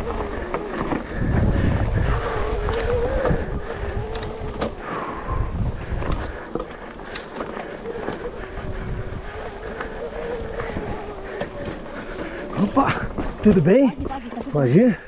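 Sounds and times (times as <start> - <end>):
electric bike motor whining: 0.0 - 14.6
bike clicks and knocks: 2.6 - 4.8, 5.8 - 8.4, 9.6 - 14.7.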